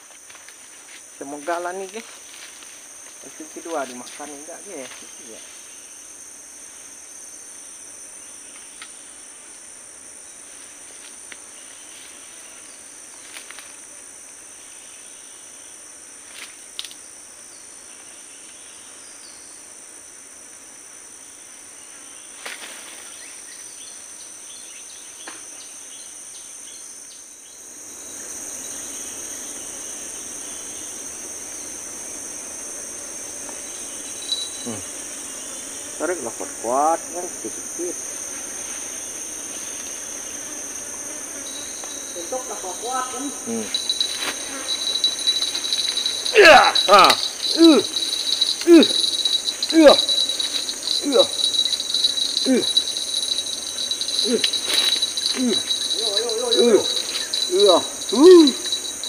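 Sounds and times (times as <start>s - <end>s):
high-pitched insect drone: 0.0s - 59.0s
dull rustling: 43.6s - 59.0s.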